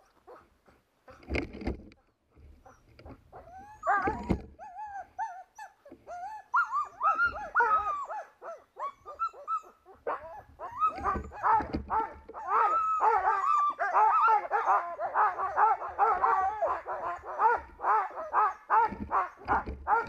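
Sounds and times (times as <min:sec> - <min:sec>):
dogs whining: 0:02.6 - 0:20.0.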